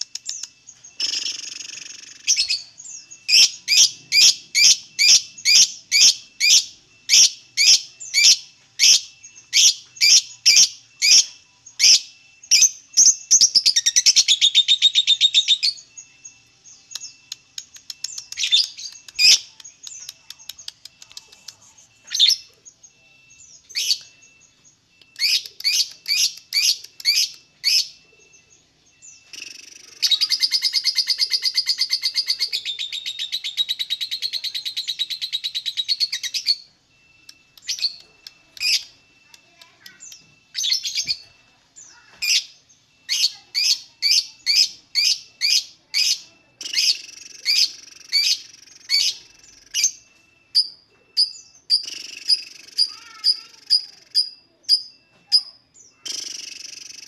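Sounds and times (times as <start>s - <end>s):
lovebird chirping: 0.0s - 57.0s
lovebird chattering trill: 25.1s - 28.0s, 29.3s - 36.7s, 37.6s - 41.2s, 41.8s - 50.0s, 50.6s - 57.0s.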